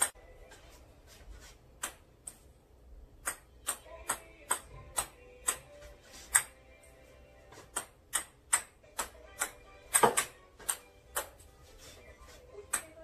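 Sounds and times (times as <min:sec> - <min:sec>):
ping pong ball bouncing on paddle: 0:07.7 - 0:11.3.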